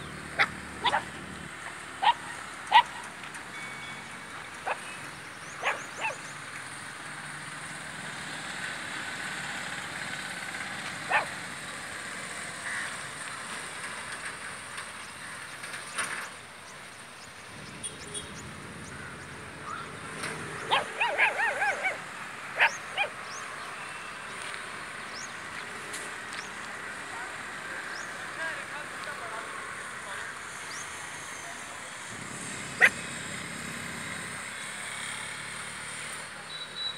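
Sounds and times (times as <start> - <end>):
street traffic hum: 0.0 - 36.9
puppies yelping: 0.2 - 1.2, 2.0 - 3.1, 4.6 - 6.3, 11.0 - 11.4, 19.8 - 23.4, 32.3 - 33.2
puppies barking: 0.2 - 1.3, 2.0 - 3.1, 4.6 - 6.3, 11.0 - 11.4, 20.5 - 23.4, 32.4 - 33.2.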